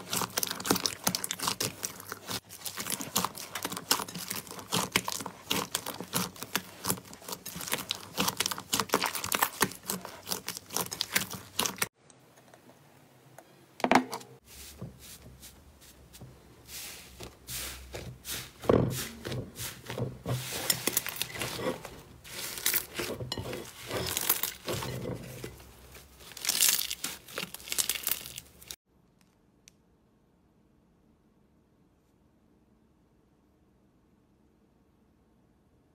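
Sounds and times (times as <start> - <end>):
slime crackling and popping: 0.0 - 11.9, 26.2 - 28.8
slime squishing: 0.0 - 12.0, 14.6 - 28.8.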